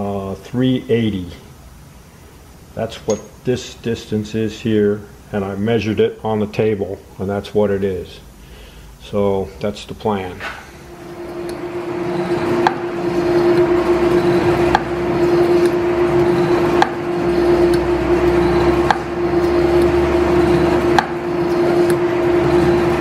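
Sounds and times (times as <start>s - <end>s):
metal planer droning: 10.9s - 23.0s
planer clacking: 11.0s - 23.0s.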